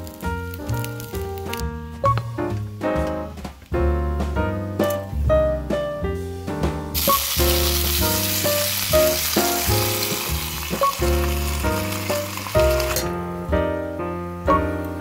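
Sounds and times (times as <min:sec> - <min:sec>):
water sizzling in a hot pan: 0:00.0 - 0:01.6, 0:07.0 - 0:13.2
background piano music: 0:00.0 - 0:15.0
pan lid shutting: 0:12.4 - 0:13.1.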